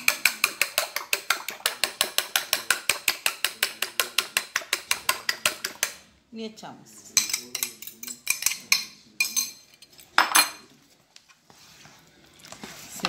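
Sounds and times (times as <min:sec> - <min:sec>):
utensil clinking in metal bowl: 0:00.0 - 0:06.0, 0:07.1 - 0:10.7.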